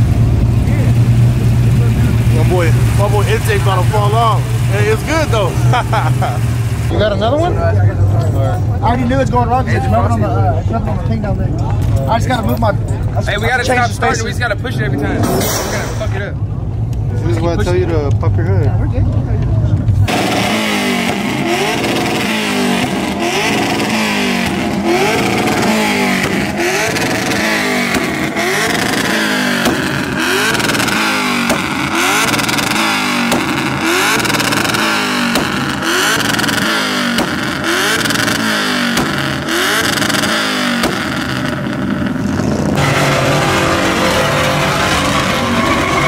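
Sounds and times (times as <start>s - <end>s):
car engine revving: 0.0s - 9.7s, 19.7s - 46.0s.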